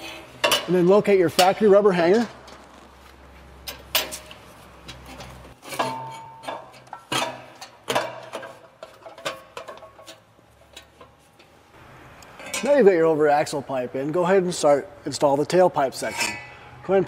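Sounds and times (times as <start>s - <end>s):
exhaust pipe clanking against fittings: 3.6s - 11.6s.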